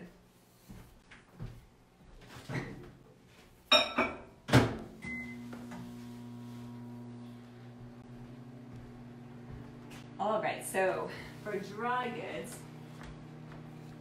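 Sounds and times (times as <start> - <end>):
microwave oven humming: 4.7 - 14.0.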